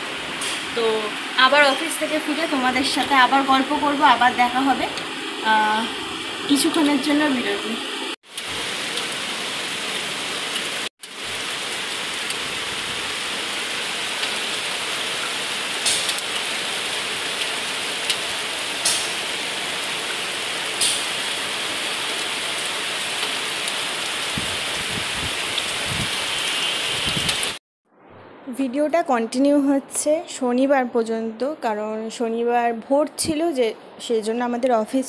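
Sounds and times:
heavy rain pouring: 0:00.0 - 0:27.6
raindrops ticking close by: 0:08.2 - 0:09.3, 0:09.9 - 0:24.7.

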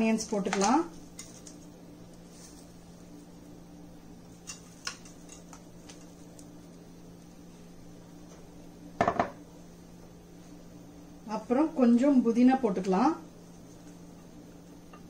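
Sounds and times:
steady low hum: 0:00.0 - 0:15.0
fried onions ticking and rustling: 0:00.2 - 0:03.4, 0:04.2 - 0:07.3.

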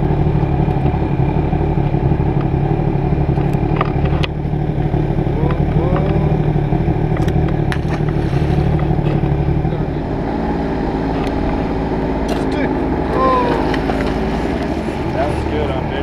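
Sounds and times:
small engine running: 0:00.0 - 0:16.0.

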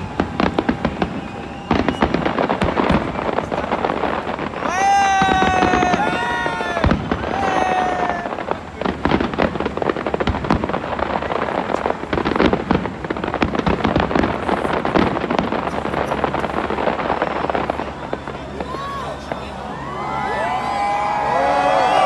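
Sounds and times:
fireworks bangs and crackles: 0:00.0 - 0:22.0.

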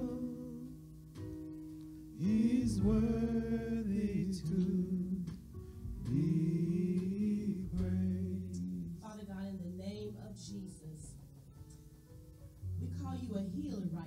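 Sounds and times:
person singing gospel: 0:00.0 - 0:01.0, 0:02.1 - 0:09.9
held chords: 0:00.0 - 0:14.0.

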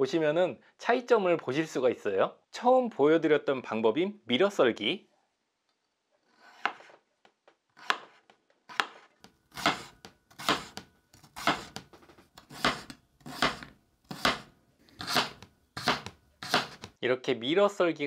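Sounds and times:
knife cutting on wooden board: 0:06.3 - 0:07.0, 0:07.8 - 0:17.0.

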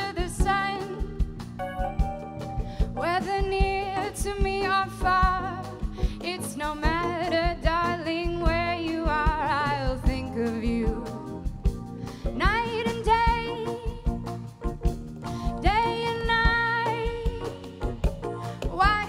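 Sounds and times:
jazz band playing swing: 0:00.0 - 0:19.0.

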